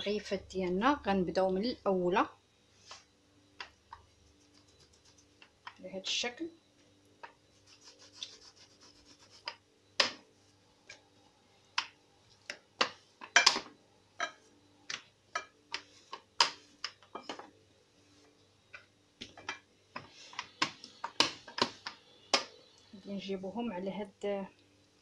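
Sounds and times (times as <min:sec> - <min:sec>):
rolling pin rubbing over dough: 0:07.5 - 0:09.6.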